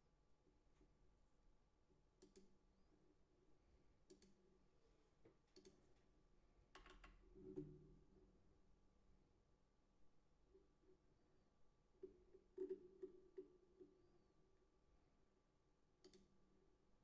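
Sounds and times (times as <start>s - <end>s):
computer keys clicking: 2.2s - 2.5s, 16.0s - 16.3s.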